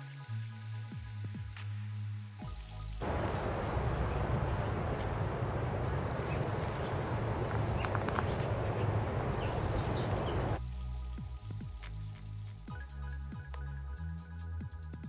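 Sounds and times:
high-pitched whine: 0:03.0 - 0:10.6
low rumble and hiss: 0:03.0 - 0:12.6.

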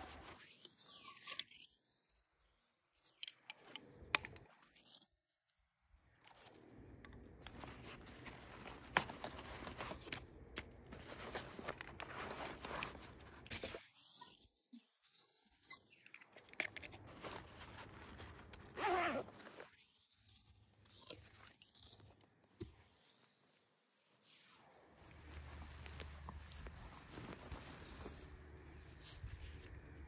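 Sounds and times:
fabric rustling and scraping: 0:00.0 - 0:01.7, 0:07.5 - 0:14.1, 0:17.0 - 0:20.2, 0:22.7 - 0:30.0.

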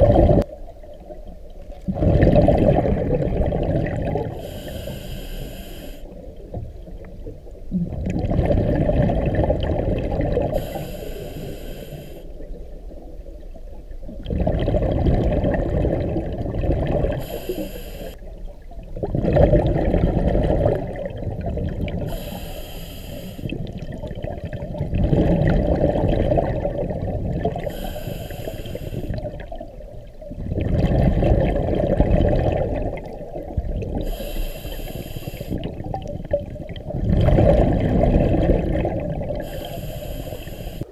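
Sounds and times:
exhaled bubbles rumbling underwater: 0:00.0 - 0:40.9
regulator inhale hiss: 0:04.4 - 0:06.2, 0:10.6 - 0:12.4, 0:17.2 - 0:18.2, 0:22.1 - 0:23.6, 0:27.6 - 0:29.2, 0:34.0 - 0:35.7, 0:39.4 - 0:40.9.

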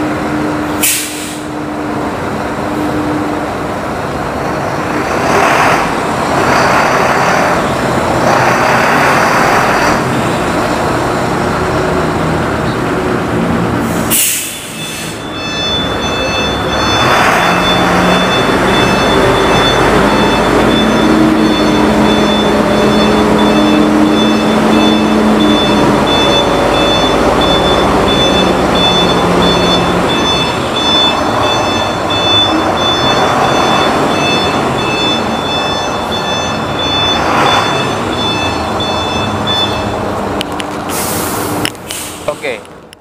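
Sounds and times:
diesel truck engine running: 0:00.0 - 0:42.9
reversing alarm beeps: 0:14.5 - 0:40.1.

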